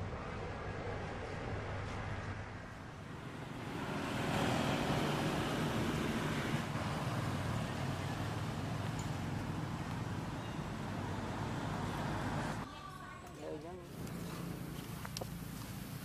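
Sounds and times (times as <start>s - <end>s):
steady rumbling noise: 0.0s - 10.2s.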